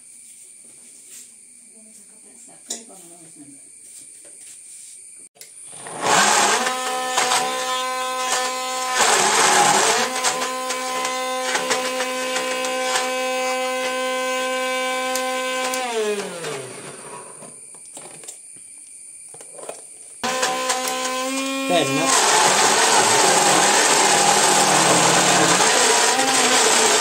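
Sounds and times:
harsh grinding noise: 5.7s - 17.5s, 20.2s - 27.0s
mixer grinder motor whine: 5.7s - 17.5s, 20.2s - 27.0s.

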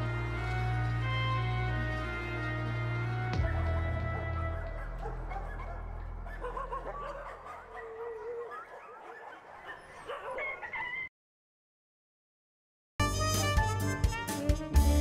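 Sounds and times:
music: 0.0s - 6.2s, 13.0s - 15.0s
dog whimpering and yipping: 4.2s - 11.1s.

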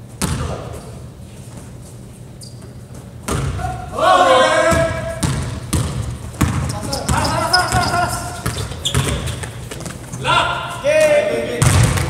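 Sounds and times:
person shouting: 3.6s - 5.1s, 10.2s - 11.6s.

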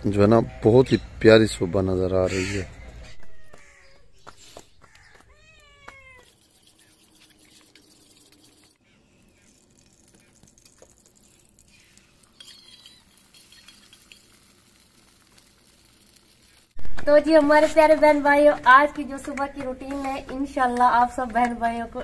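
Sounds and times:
faint high calls: 11.2s - 14.2s.

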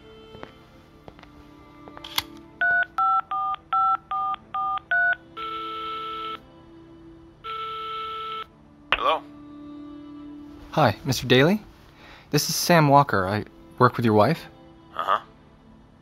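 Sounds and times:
telephone ringing tones: 2.6s - 6.4s, 7.4s - 8.5s.

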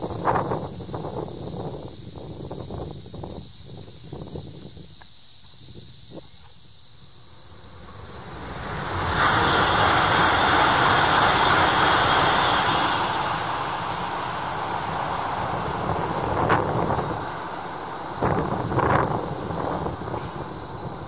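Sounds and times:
high-speed train rushing past: 7.2s - 21.0s.

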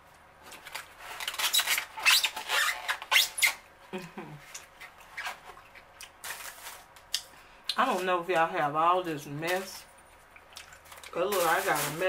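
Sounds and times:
wet chewing and smacking: 4.5s - 6.2s, 10.0s - 11.2s.

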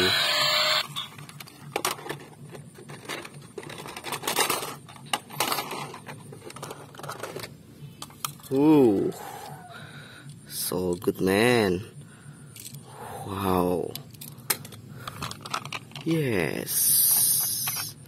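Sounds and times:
toy car electronic sound effect: 0.0s - 2.2s, 17.1s - 18.0s
toy cars clattering in plastic basket: 1.1s - 8.5s, 14.1s - 16.3s.

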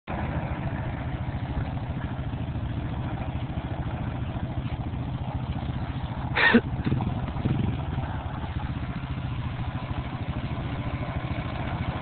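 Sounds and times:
engine idling: 0.1s - 12.0s.

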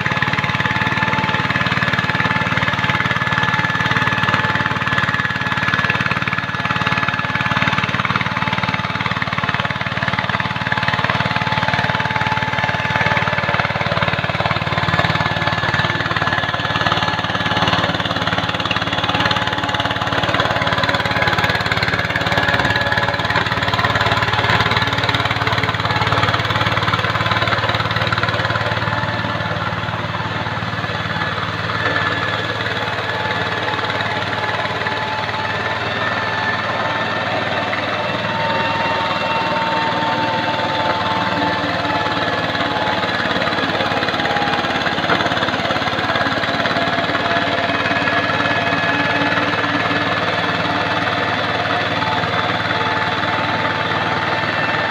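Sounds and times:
tractor engine running under load: 0.0s - 54.9s
thin steady whine: 28.7s - 54.9s.

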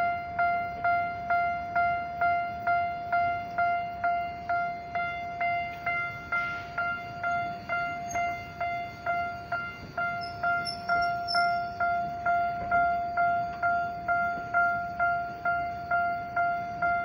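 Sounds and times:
level crossing warning bell: 0.0s - 17.0s.

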